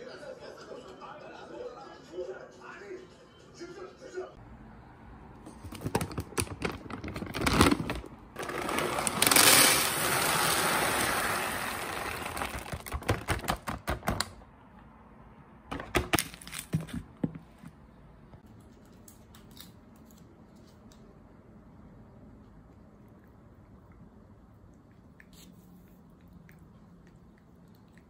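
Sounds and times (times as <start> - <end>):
plastic bag crinkling: 5.8 - 13.4
kibble pouring into plastic bin: 7.0 - 13.0.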